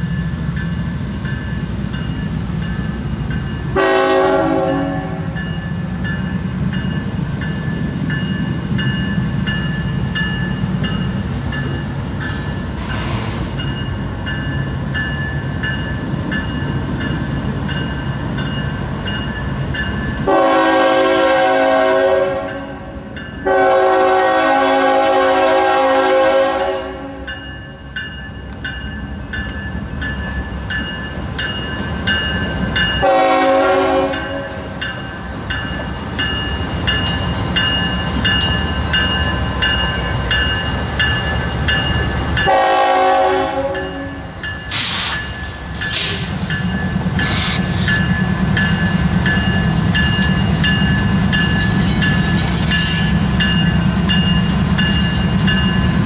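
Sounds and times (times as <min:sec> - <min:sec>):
crossing bell ringing: 0:00.0 - 0:12.9, 0:13.5 - 0:56.0
train engine rumble: 0:00.0 - 0:56.0
locomotive air horn blasts: 0:03.8 - 0:05.4, 0:20.3 - 0:22.8, 0:23.4 - 0:27.3, 0:33.0 - 0:34.6, 0:42.4 - 0:44.3.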